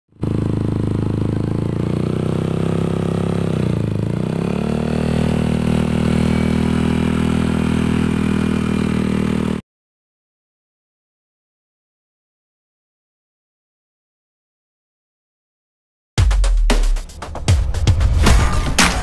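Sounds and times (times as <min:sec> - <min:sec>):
scooter engine idling: 0:00.2 - 0:09.6.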